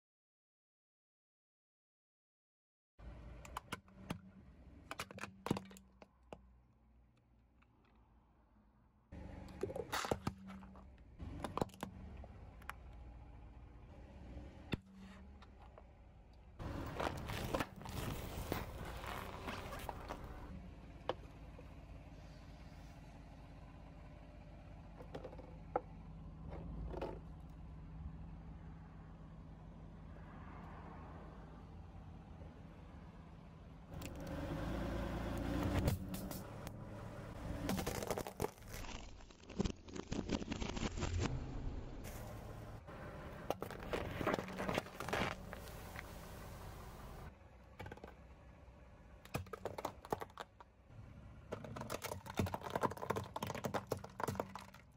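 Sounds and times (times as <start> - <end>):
low car hum: 3.0 - 39.6, 40.6 - 54.9
plastic container crunching under tyre: 9.5 - 12.1, 16.6 - 20.5, 37.4 - 41.3, 42.1 - 47.1, 49.2 - 50.6, 51.5 - 54.9.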